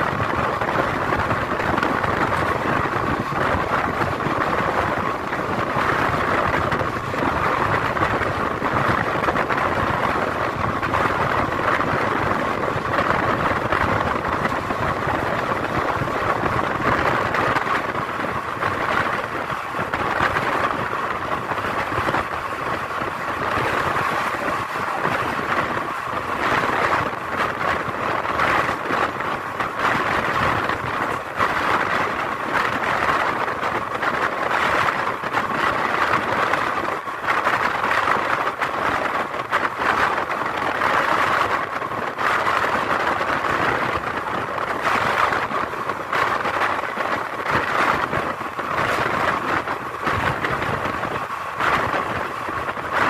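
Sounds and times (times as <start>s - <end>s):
rushing wind: 0.0s - 53.0s
train wheels on rails: 0.0s - 53.0s.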